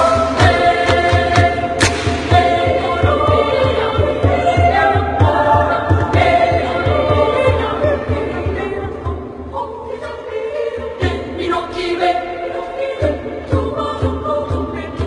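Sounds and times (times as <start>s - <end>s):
low thumping beat: 0.0s - 9.6s
choir singing folk song: 0.0s - 15.0s.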